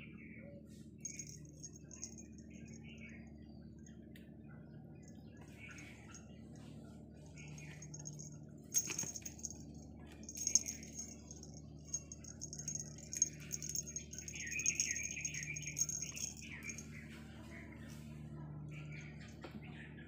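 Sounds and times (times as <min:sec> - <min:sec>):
room hum: 0:00.1 - 0:20.0
cat toy rustling and rattling: 0:01.0 - 0:03.0, 0:05.0 - 0:17.6
high wavering chirping: 0:01.0 - 0:03.4, 0:07.3 - 0:17.0.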